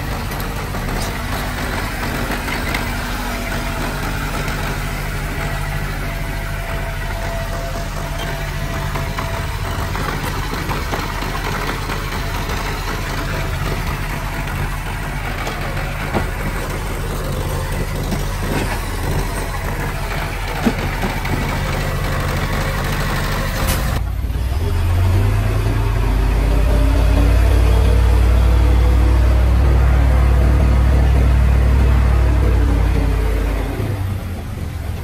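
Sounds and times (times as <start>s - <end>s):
metal knocks and clanks: 0.0s - 24.2s
heavy diesel engine running: 0.0s - 35.0s.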